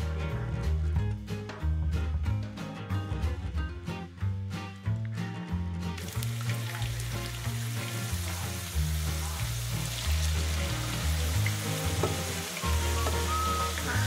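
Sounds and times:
background music with bass line: 0.0 - 14.0
potatoes sizzling in hot oil: 6.0 - 14.0.

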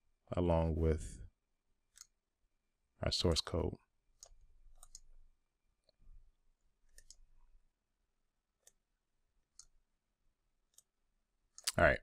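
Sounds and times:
computer mouse clicks: 1.9 - 2.2, 4.2 - 5.2, 6.8 - 7.3, 9.5 - 9.8, 10.7 - 10.9, 11.5 - 11.8.

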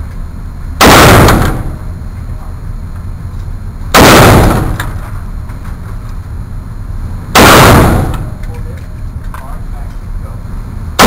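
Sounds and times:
rifle shot echoing indoors: 0.8 - 1.9, 3.9 - 5.2, 7.3 - 8.5.

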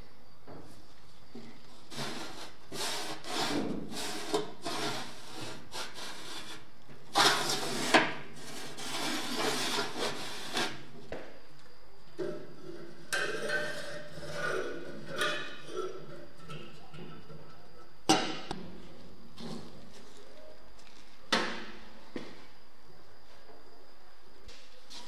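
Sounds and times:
metal damper scraping rusted lid: 12.2 - 18.5.

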